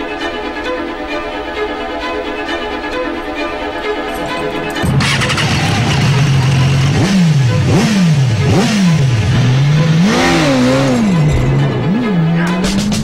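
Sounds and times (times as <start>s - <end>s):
motorcycle engine idling and revving: 4.5s - 13.0s.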